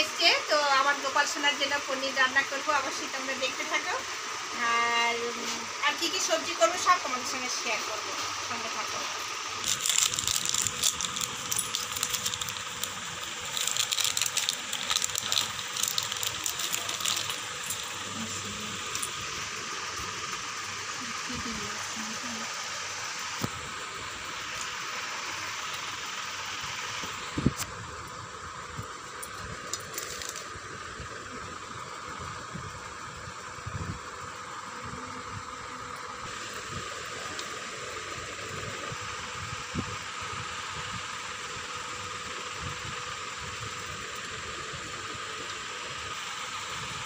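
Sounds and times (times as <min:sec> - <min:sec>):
background hiss and hum: 0:00.0 - 0:47.0
plastic packet crinkling: 0:09.6 - 0:18.2, 0:29.7 - 0:30.5.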